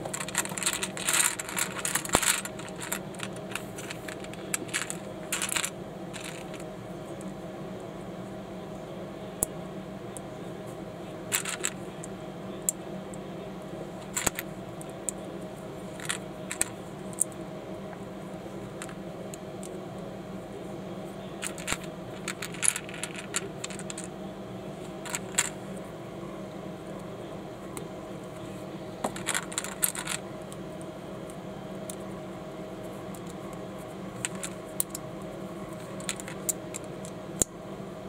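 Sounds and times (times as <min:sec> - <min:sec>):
steady low hum: 0:00.0 - 0:38.0
plastic bricks clicking together: 0:00.1 - 0:06.6, 0:25.0 - 0:25.5, 0:29.1 - 0:30.2.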